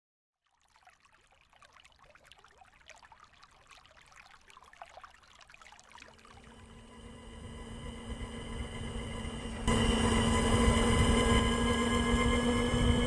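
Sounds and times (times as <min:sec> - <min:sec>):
faint trickling water: 0:00.4 - 0:07.0
low hum with high whine: 0:06.4 - 0:13.0.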